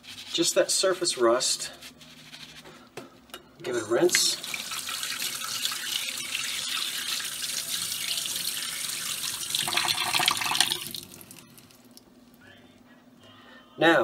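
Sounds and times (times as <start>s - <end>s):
tap water running into sink: 4.1s - 11.5s.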